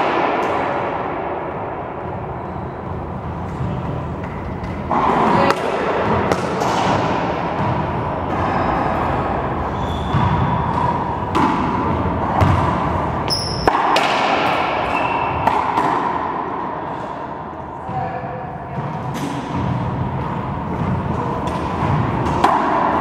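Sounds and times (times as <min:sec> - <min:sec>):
ball smacking racquets and walls: 0:03.2 - 0:17.7, 0:18.8 - 0:23.0
sneakers squeaking on hardwood: 0:07.6 - 0:11.2.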